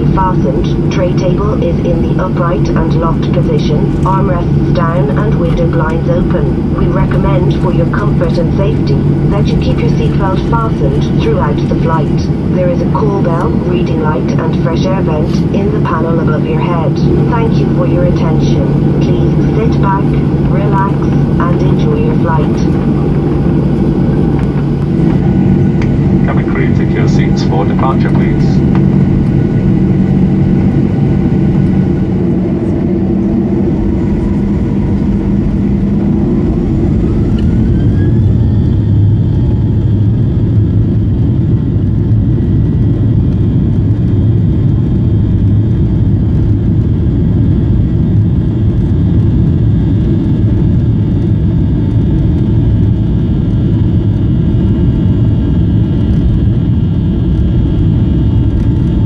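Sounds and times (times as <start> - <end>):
jet engines spooling up: 0.0 - 41.0.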